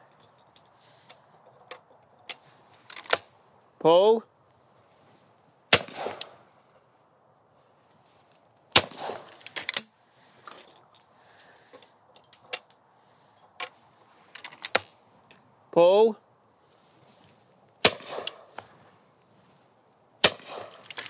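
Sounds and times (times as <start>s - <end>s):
metallic clicks of gun action: 0.2s - 3.3s, 9.0s - 12.8s, 20.3s - 21.0s
shotgun shots with echo: 5.7s - 6.4s, 8.8s - 9.3s, 17.8s - 18.5s, 20.2s - 20.8s.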